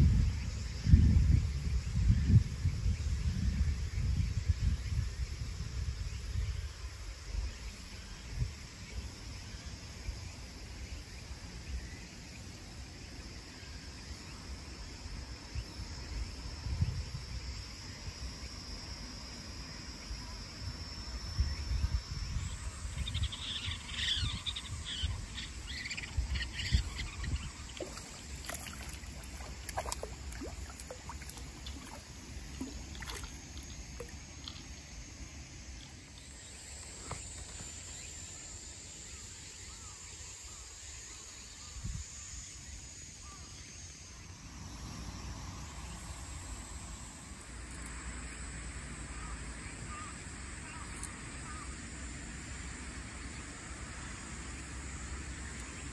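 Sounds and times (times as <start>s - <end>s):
wind rumbling on microphone: 0.0s - 7.6s, 16.1s - 17.6s, 21.4s - 34.6s
high insect drone: 0.0s - 55.9s.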